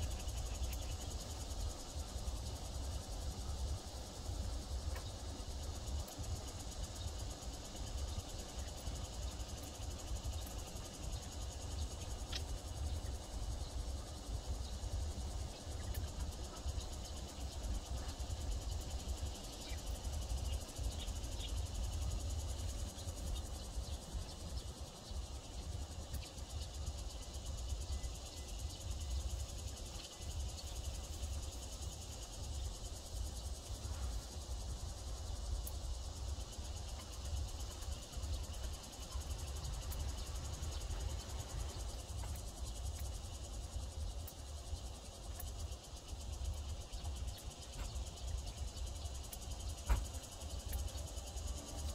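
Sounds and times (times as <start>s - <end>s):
insects chirring: 0.0s - 51.9s.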